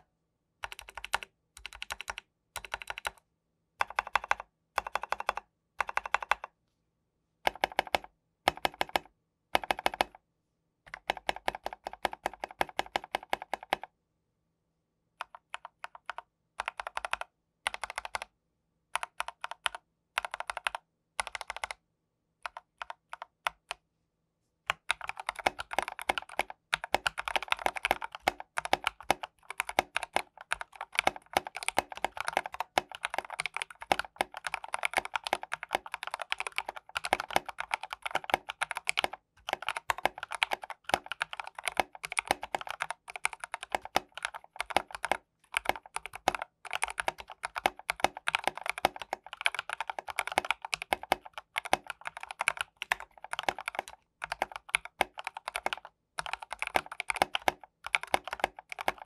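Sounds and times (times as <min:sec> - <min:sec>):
typing on mechanical keyboard: 0:00.6 - 0:03.2, 0:03.8 - 0:06.5, 0:07.4 - 0:10.2, 0:10.9 - 0:13.9, 0:15.2 - 0:18.3, 0:19.0 - 0:21.8, 0:22.4 - 0:23.8, 0:24.7 - 0:59.0.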